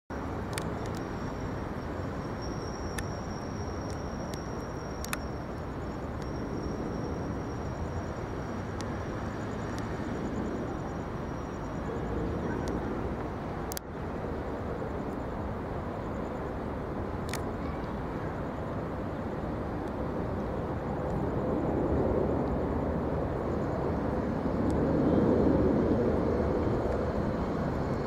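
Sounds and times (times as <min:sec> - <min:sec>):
jet airliner rumble: 0:00.1 - 0:28.0
faint clicks: 0:00.5 - 0:01.1, 0:03.8 - 0:05.3.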